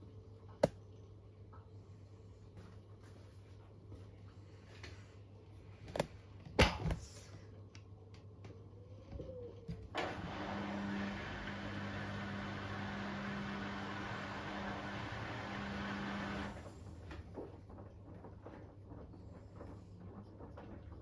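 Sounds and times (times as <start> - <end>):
washing machine hum and rushing water: 9.8 - 21.0.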